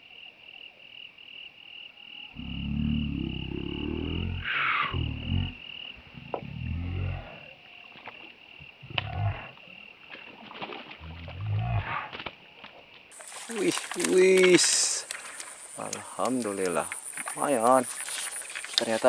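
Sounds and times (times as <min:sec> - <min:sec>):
fish splashing in water: 0:10.0 - 0:11.4, 0:12.0 - 0:19.0.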